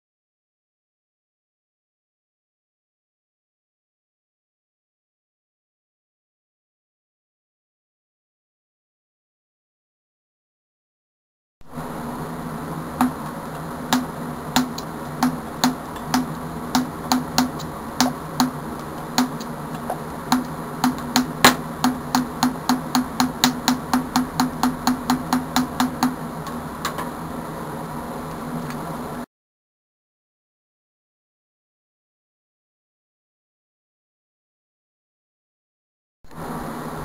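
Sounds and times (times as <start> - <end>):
steady electrical hum: 11.6 - 29.3, 36.3 - 37.0.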